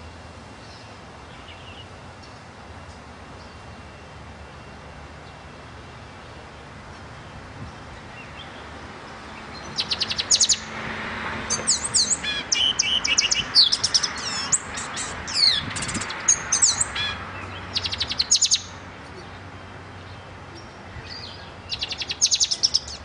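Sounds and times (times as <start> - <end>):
songbird whistling: 11.6 - 18.7, 21.0 - 23.0.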